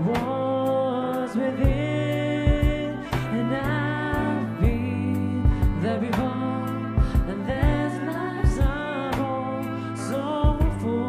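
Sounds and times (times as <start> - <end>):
instrumental accompaniment: 0.0 - 11.0
man singing into microphone: 0.0 - 11.0
drum beat: 2.5 - 3.4, 4.6 - 4.9, 5.5 - 6.3, 7.0 - 7.8.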